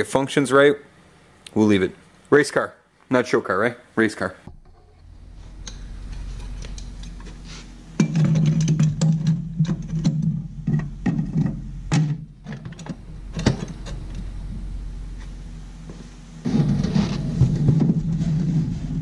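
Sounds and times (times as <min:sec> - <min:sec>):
metal clunks and scrapes: 0:04.5 - 0:14.6, 0:16.0 - 0:19.0.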